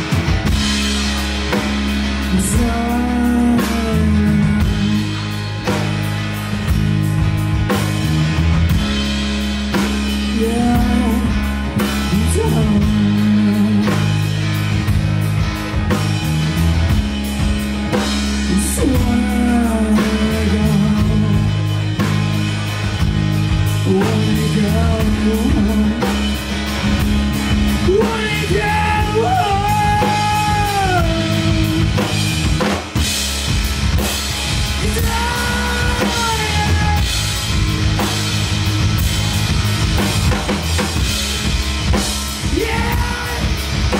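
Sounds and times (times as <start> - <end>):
bass guitar: 0.0 - 43.9
drum kit: 0.0 - 43.9
electric guitar: 0.0 - 43.9
person singing: 2.2 - 5.4, 10.3 - 14.2, 18.5 - 21.7, 23.8 - 26.3, 27.8 - 32.2, 34.8 - 37.3, 42.4 - 43.9.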